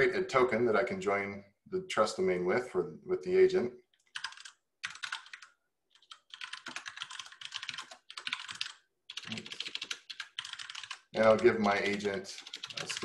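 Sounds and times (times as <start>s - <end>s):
fast typing on keyboard: 4.0s - 13.0s.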